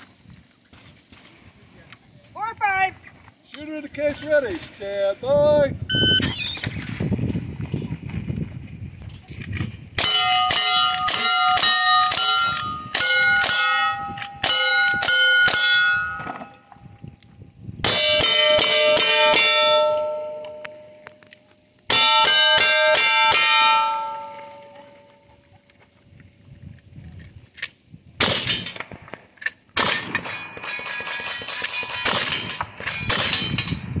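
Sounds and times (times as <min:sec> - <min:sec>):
steel targets ringing: 0:10.0 - 0:16.8, 0:17.8 - 0:21.0, 0:21.9 - 0:25.1, 0:30.0 - 0:33.8
gunshots: 0:28.2 - 0:29.2, 0:29.8 - 0:33.7.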